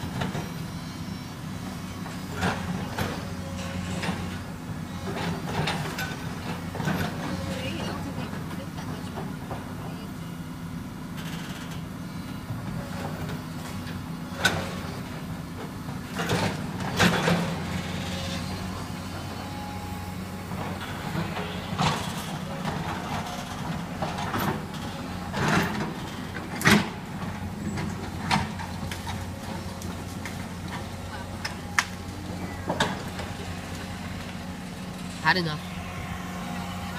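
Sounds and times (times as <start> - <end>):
excavator engine hum: 0.0 - 36.9
rubble crunching and clanking: 14.5 - 35.2.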